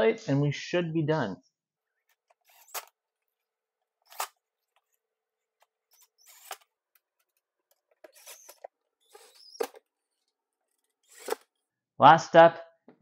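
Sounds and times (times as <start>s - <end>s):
impact driver clicks and rattles: 5.9s - 9.9s.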